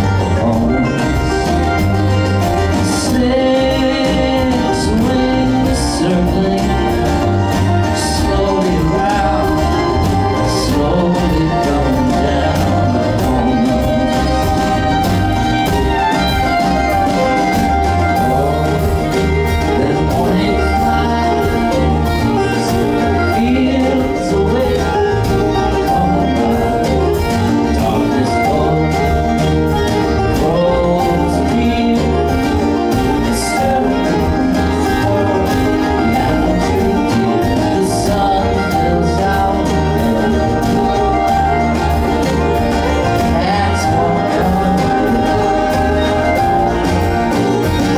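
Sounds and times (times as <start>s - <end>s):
acoustic guitar: 0.0s - 47.9s
banjo: 0.0s - 47.9s
fiddle: 0.0s - 47.9s
mandolin: 0.0s - 47.9s
upright bass: 0.0s - 47.9s.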